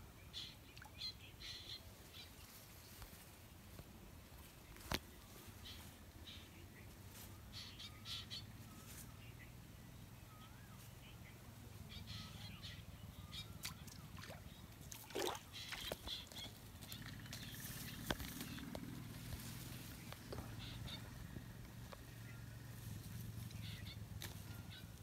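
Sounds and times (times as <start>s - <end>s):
rustling of plants: 2.0s - 7.6s, 15.0s - 25.0s
bird chirps: 23.4s - 25.0s.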